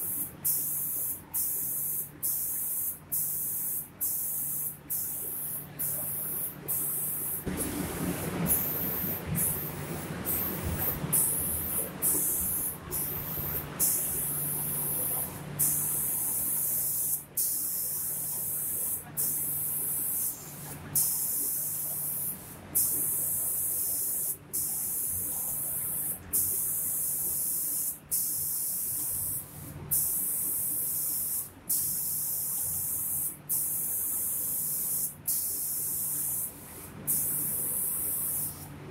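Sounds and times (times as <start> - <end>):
spray gun hissing in bursts: 0.0 - 38.8
low machine hum: 5.1 - 17.0.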